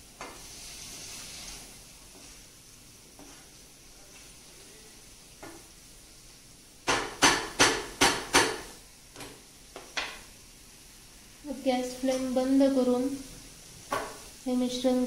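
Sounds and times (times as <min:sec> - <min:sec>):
faint sizzle: 0:00.0 - 0:08.0, 0:08.6 - 0:15.0
spatula stirring in frying pan: 0:00.0 - 0:08.8
spatula knocking against pan: 0:06.8 - 0:09.3.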